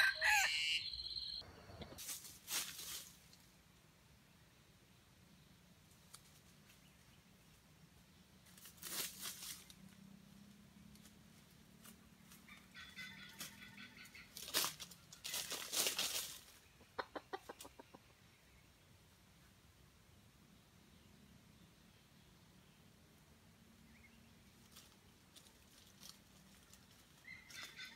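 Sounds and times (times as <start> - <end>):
junglefowl clucking: 0.0 - 2.0, 12.4 - 15.5, 16.8 - 18.1, 27.2 - 27.9
rustling in dry leaf litter: 1.9 - 3.6, 8.4 - 10.2, 13.2 - 16.6, 24.4 - 27.9.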